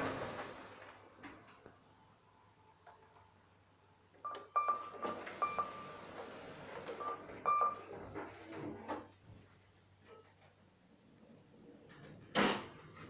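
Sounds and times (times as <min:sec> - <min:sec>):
elevator button beeps with clicks: 0:04.2 - 0:05.9, 0:07.0 - 0:07.8.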